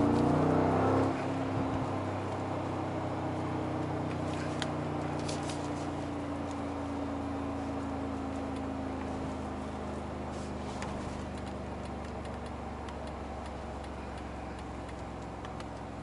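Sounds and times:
car engine droning inside cabin: 0.0 - 16.0
light clicks: 10.8 - 15.9.

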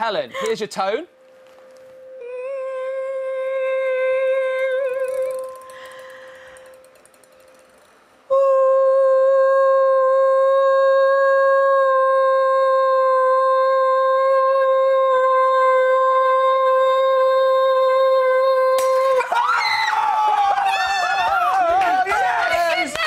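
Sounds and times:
person singing a steady note: 1.9 - 7.4, 8.2 - 19.4.

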